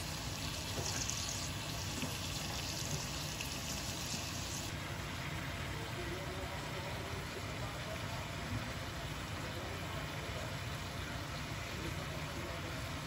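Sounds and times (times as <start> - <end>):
onions sizzling in oil: 0.0 - 4.7.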